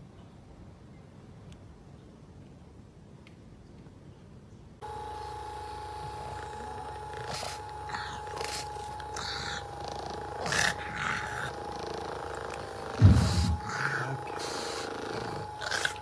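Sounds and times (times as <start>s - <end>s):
massage gun humming: 4.8s - 16.0s
loud low thump: 13.0s - 13.8s.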